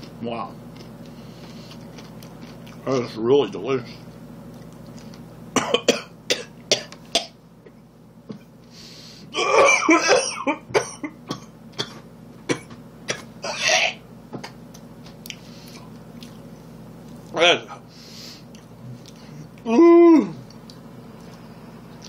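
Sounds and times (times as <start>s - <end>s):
man crunching chips: 0.0s - 3.0s
man coughing and clearing throat: 5.6s - 7.4s, 9.3s - 14.0s.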